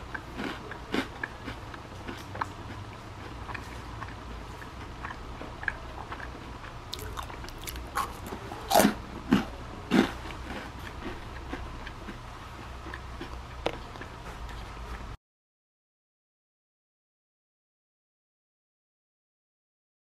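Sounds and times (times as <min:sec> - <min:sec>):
person crunching rusk: 0:06.9 - 0:14.1.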